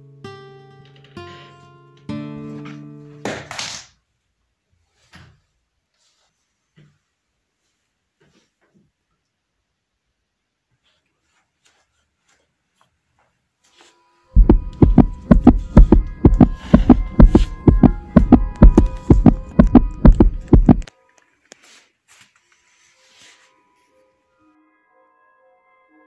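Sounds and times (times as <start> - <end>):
heartbeat sound effect: 14.4 - 20.9
steady held tone: 14.4 - 20.9.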